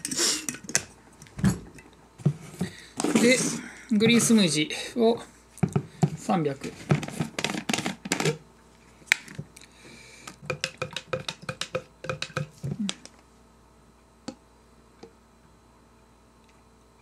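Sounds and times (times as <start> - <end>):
spoon clinking against plastic jug: 10.4 - 12.5.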